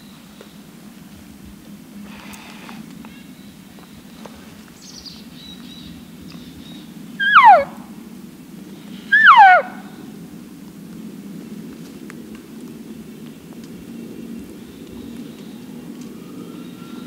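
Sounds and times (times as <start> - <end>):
elk call mews: 7.2 - 7.8, 9.1 - 10.0.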